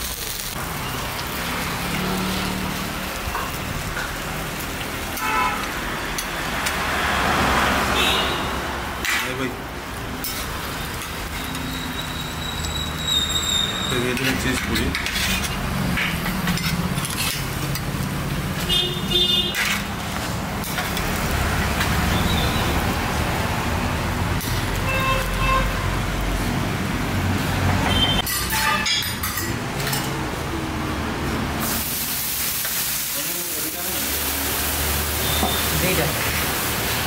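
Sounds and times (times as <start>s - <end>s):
road traffic rumble: 0.0s - 37.0s
metal spatula clinking on pans: 13.9s - 18.0s, 28.2s - 30.2s.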